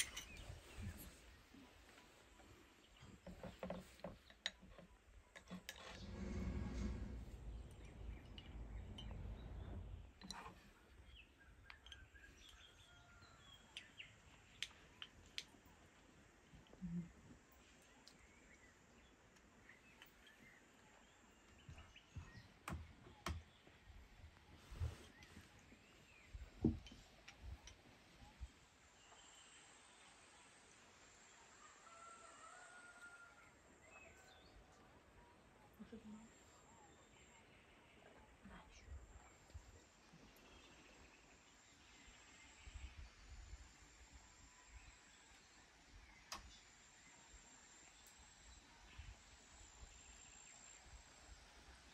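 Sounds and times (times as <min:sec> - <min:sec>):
tableware clinking on a tray: 0:00.0 - 0:00.6
low rumble: 0:05.9 - 0:10.2.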